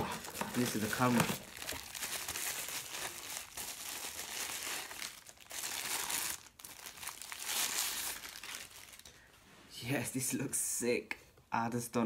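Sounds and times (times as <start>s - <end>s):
plastic wrapping crinkling: 0.0s - 9.3s.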